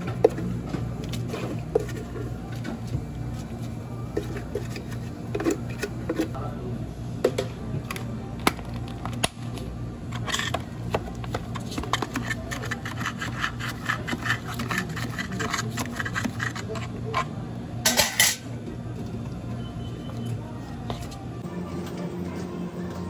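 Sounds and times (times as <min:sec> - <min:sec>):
spoon scraping plastic cup: 0:11.6 - 0:17.0.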